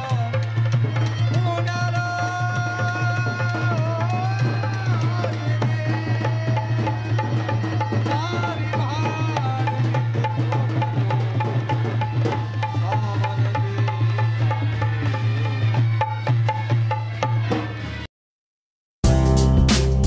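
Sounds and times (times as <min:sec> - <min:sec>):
hand drums: 0:00.0 - 0:17.9, 0:19.0 - 0:20.0
sliding melody: 0:19.0 - 0:20.0.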